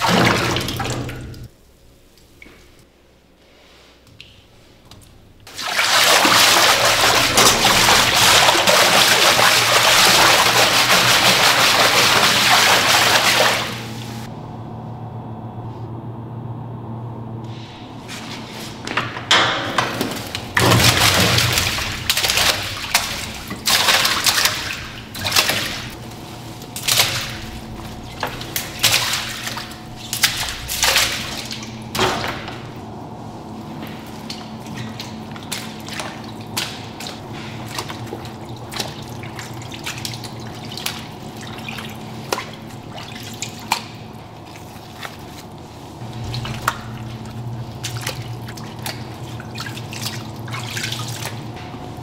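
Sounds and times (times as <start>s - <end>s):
water dripping: 0.0s - 1.5s, 20.0s - 32.6s, 33.8s - 51.8s
water splashing and pouring: 0.0s - 1.5s, 5.5s - 14.3s, 20.0s - 32.8s, 33.8s - 52.0s
faint steady hum: 13.6s - 52.0s.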